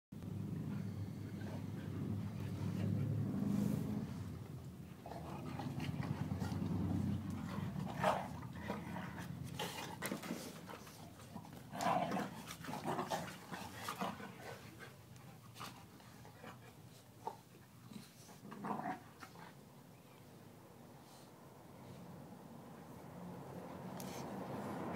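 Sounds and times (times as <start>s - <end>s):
dogs growling: 0.4s - 14.9s, 16.2s - 19.5s.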